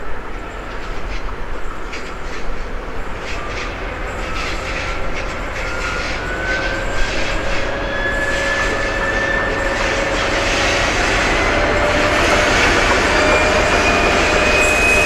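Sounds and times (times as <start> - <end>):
diesel locomotive engines: 0.0 - 15.0.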